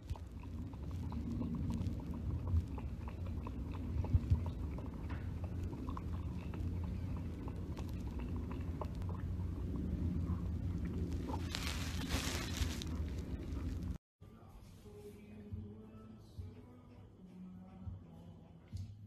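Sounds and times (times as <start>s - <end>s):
cat lapping water: 0.0s - 12.1s
low rumble: 0.0s - 14.0s.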